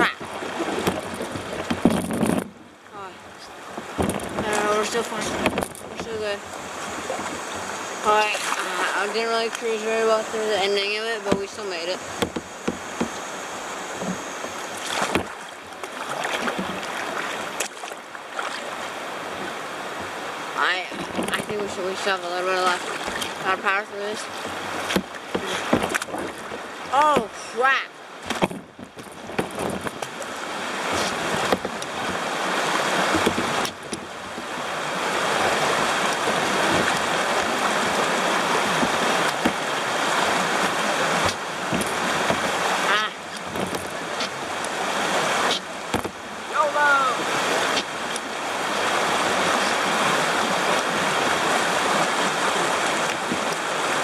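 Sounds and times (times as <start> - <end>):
paddle strokes and splashing: 0.0 - 54.0
rushing whitewater: 0.0 - 54.0
sharp knocks: 0.6 - 2.6, 12.1 - 13.2, 14.0 - 15.4, 28.2 - 30.2, 45.5 - 46.2.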